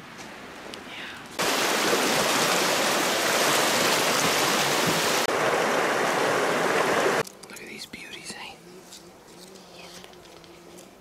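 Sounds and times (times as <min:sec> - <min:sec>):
river water rushing: 0:01.4 - 0:07.2.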